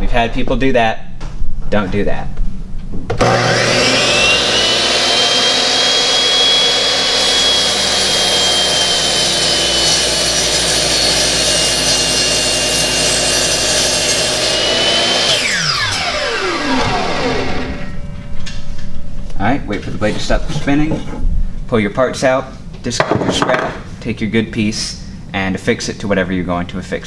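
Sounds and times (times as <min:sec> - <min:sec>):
miter saw motor whine: 0:03.2 - 0:11.4, 0:12.0 - 0:18.1
saw blade cutting wood: 0:03.2 - 0:18.0.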